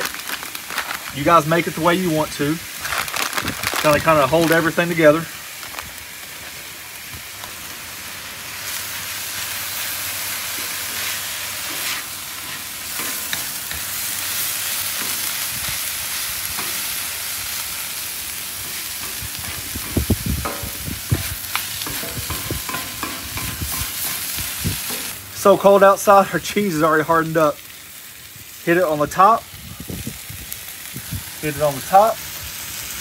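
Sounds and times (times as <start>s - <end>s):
meat sizzling on griddle: 0.0s - 33.0s
spatulas scraping: 10.6s - 13.4s
spatulas knocking on griddle: 19.0s - 24.2s.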